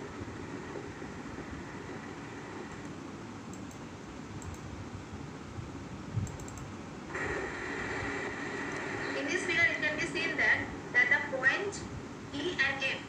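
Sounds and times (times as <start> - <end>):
faint clicks: 2.7 - 3.8, 4.4 - 4.7, 6.2 - 6.7.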